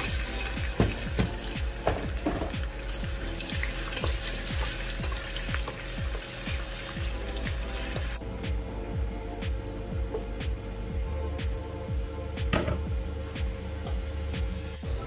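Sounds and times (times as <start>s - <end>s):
onions sizzling in hot oil: 0.0s - 8.2s
background music with steady beat: 0.0s - 15.0s.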